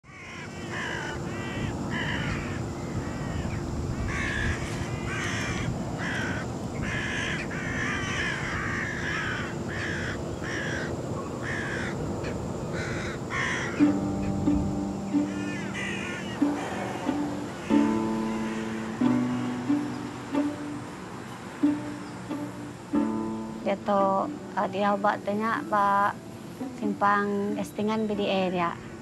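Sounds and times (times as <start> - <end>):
crows cawing: 0.0 - 13.8, 15.2 - 20.9
plucked guitar notes: 13.8 - 26.0.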